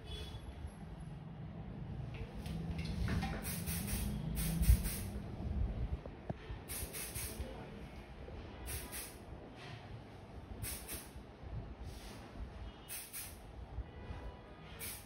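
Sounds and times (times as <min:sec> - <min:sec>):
hairspray can hissing: 0:03.4 - 0:05.2, 0:06.7 - 0:07.4, 0:08.7 - 0:09.2, 0:10.6 - 0:11.2, 0:12.9 - 0:13.4, 0:14.8 - 0:15.0.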